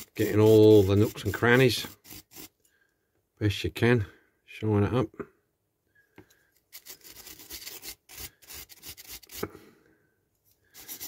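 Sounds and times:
wire brush scrubbing metal: 0.0s - 2.5s, 6.7s - 9.4s, 10.7s - 11.0s.

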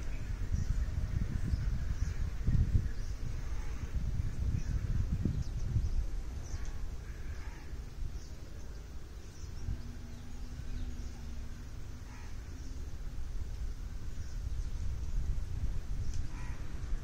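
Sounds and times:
faint bird calls: 0.0s - 5.7s, 6.3s - 13.0s, 16.0s - 17.0s
faint steady hum: 0.0s - 17.0s
wind rumbling on microphone: 0.0s - 17.0s.

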